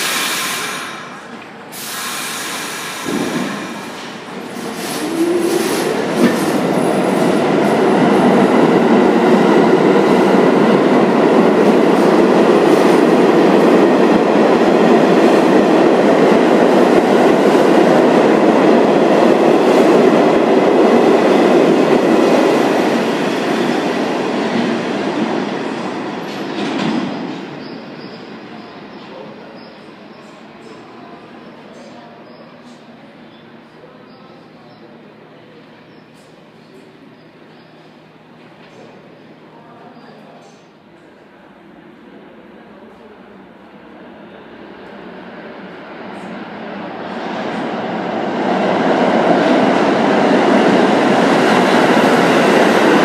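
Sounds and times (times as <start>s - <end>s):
train wheels on rails: 0.0s - 32.9s, 44.7s - 53.0s.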